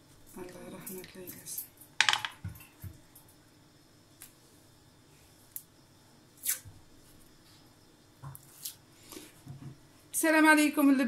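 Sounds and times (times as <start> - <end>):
sausage casing tearing: 6.4 - 6.6.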